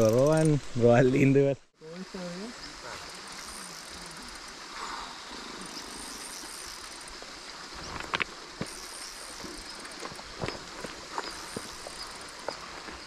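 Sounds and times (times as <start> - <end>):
insects buzzing: 0.0 - 13.0.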